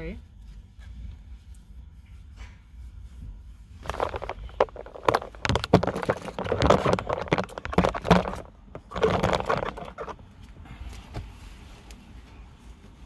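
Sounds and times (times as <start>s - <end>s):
handling noise rustling and crackling: 3.6s - 10.6s.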